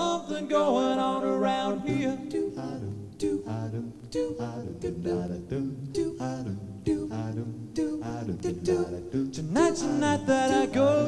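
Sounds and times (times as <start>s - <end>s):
men singing rhythmic syllables: 0.0s - 11.0s.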